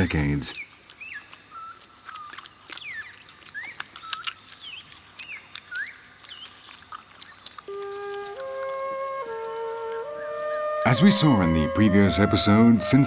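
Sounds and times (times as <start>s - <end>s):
high insect hum: 0.0s - 13.0s
flute melody: 7.7s - 13.0s
whistled bird calls: 7.8s - 13.0s.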